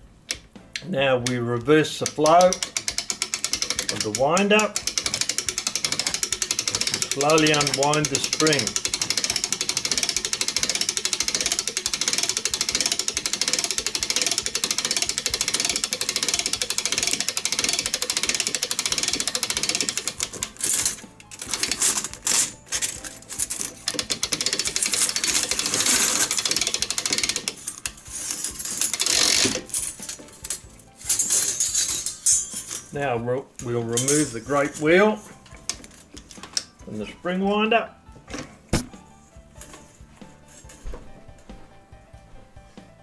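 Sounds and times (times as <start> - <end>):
rapid ratchet clicking: 2.0 - 32.8.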